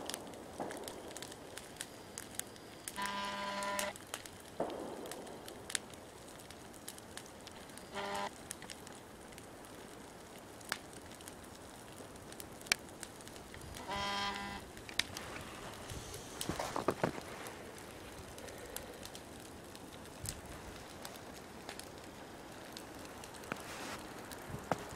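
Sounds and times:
campfire crackling and popping: 0:00.0 - 0:24.9
short horn-like toot: 0:03.0 - 0:03.9, 0:07.9 - 0:08.3, 0:13.8 - 0:14.6.

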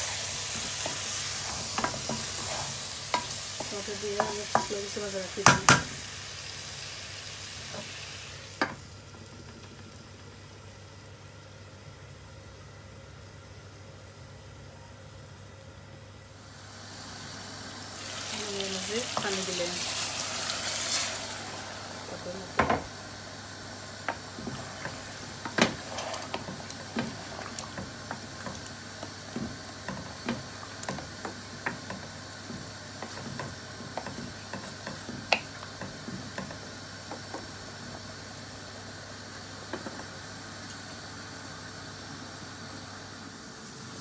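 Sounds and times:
wooden spatula scraping a pot: 0:00.0 - 0:04.8, 0:24.4 - 0:28.7, 0:29.3 - 0:36.5
faint steady hiss: 0:00.0 - 0:44.0.

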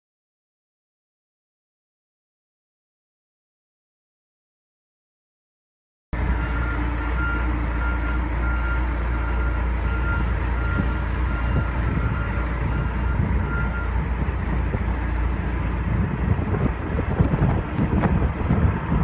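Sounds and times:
diesel engine running: 0:06.2 - 0:19.0
backup alarm beeps: 0:06.4 - 0:14.0.

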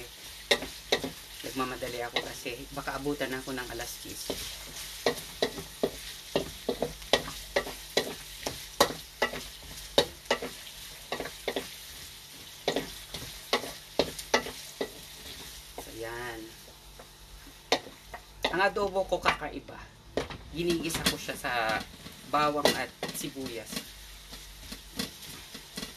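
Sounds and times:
onion sizzling in oil: 0:00.0 - 0:25.9
utensil scraping a pan: 0:20.9 - 0:25.9.

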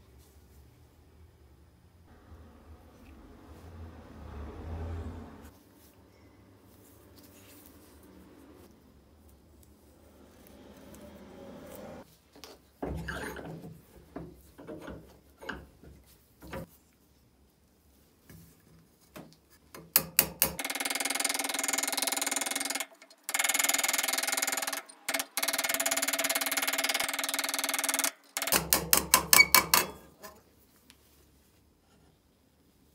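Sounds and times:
wood block knocking in vise: 0:19.8 - 0:30.4
hammer tapping on steel: 0:22.4 - 0:30.3.

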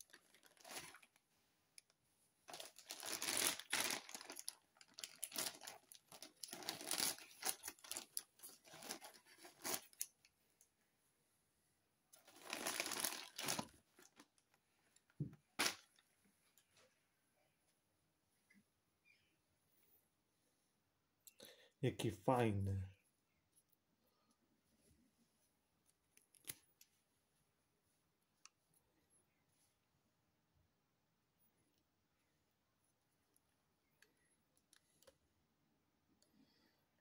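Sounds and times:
plastic bag crinkling: 0:00.0 - 0:01.2, 0:02.5 - 0:10.2, 0:12.2 - 0:14.5.

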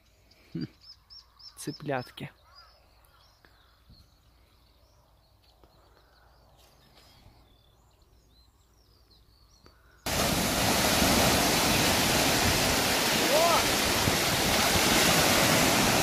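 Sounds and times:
faint bird chirps: 0:00.0 - 0:10.1
sea surf breaking on shore: 0:10.1 - 0:16.0.

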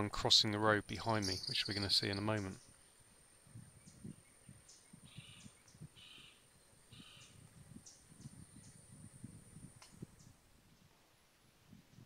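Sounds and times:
faint ticks: 0:09.7 - 0:10.4.

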